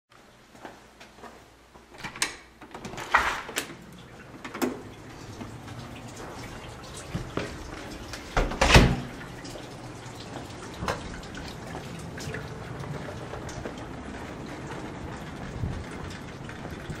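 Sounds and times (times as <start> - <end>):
water dripping: 3.6 - 17.0.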